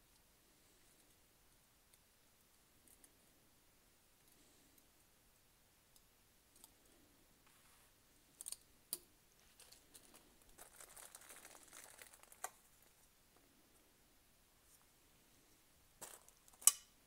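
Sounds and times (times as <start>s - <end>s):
plastic bag crinkling: 9.4s - 13.1s.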